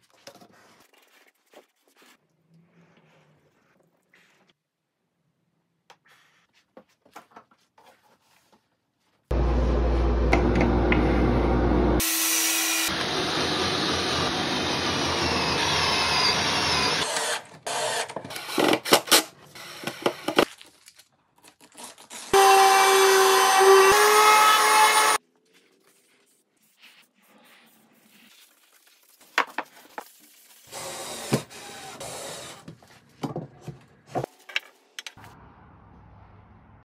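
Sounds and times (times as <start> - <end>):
power tool motor humming: 12.0 - 18.0, 22.4 - 25.2
cordless drill boring wood: 12.0 - 18.8, 22.3 - 25.2, 30.7 - 32.7.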